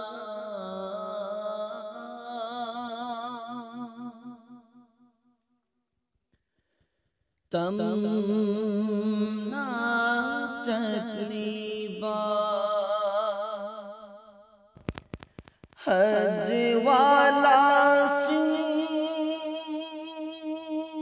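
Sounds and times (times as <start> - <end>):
man singing with heavy vibrato: 7.6 - 13.8, 15.8 - 21.0
clicks: 14.8 - 15.8.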